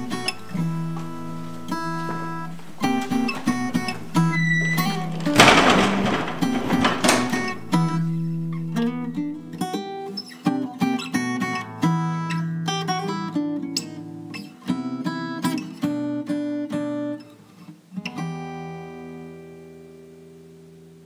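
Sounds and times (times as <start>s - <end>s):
plucked acoustic guitar: 0.0s - 5.4s.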